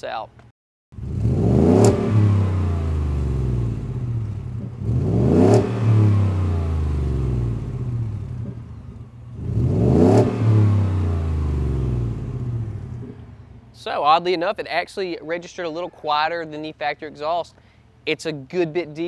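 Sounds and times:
truck engine revving: 1.0s - 13.7s.

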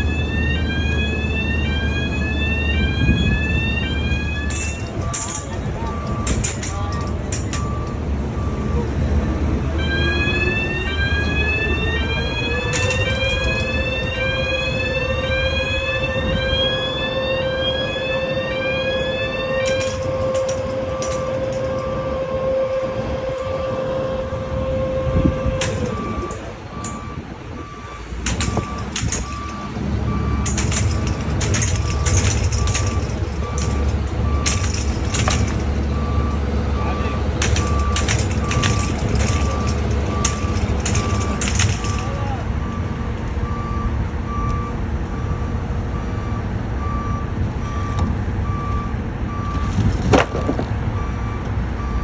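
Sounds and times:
diesel engine running: 0.0s - 52.0s
sharp metal clanks: 28.2s - 29.7s, 30.4s - 35.8s, 37.4s - 42.3s.

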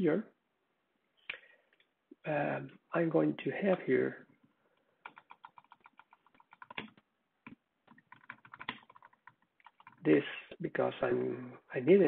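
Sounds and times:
faint keyboard typing: 4.2s - 10.1s.

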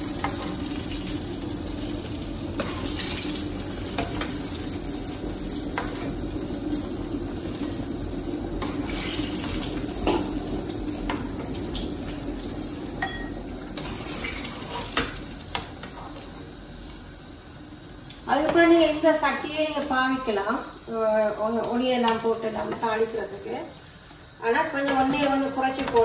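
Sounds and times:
oil sizzling and bubbling: 0.0s - 26.0s
metal spoon clinking on pan: 13.0s - 13.4s.

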